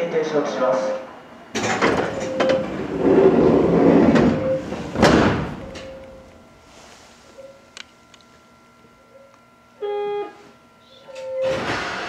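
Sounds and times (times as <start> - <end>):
train sliding doors closing: 1.0 - 6.9, 11.1 - 12.0.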